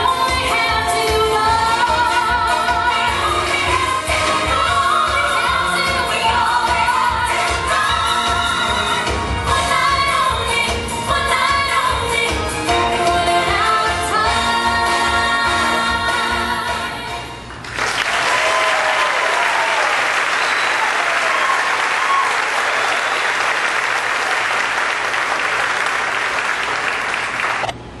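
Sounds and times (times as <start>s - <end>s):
song with singing: 0.0s - 17.5s
audience applauding: 17.5s - 27.8s
audience cheering: 17.8s - 27.7s.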